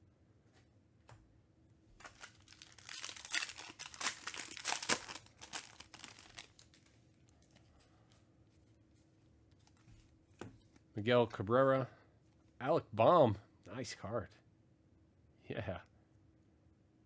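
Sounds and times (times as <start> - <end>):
plastic wrapper crinkling: 2.0 - 7.7.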